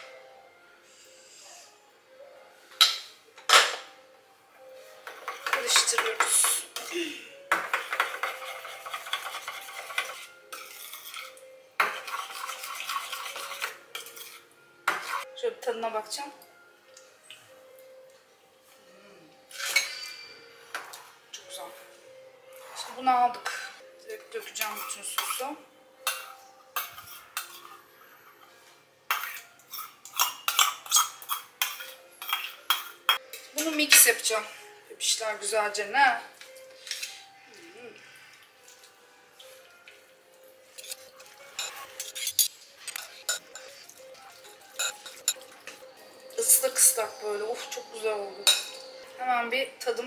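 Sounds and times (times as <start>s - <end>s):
spoon clinking in metal bowl: 7.5s - 15.2s, 19.5s - 21.0s, 24.5s - 27.8s, 29.1s - 34.1s, 40.8s - 49.1s.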